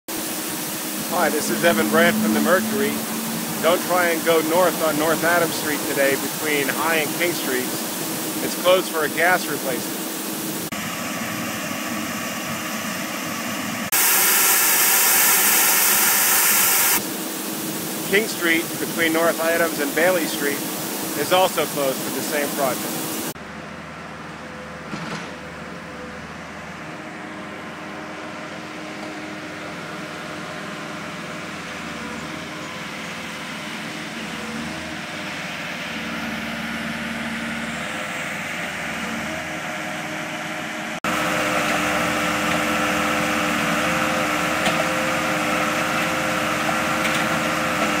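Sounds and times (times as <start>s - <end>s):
diesel engine idling: 0.2s - 13.8s.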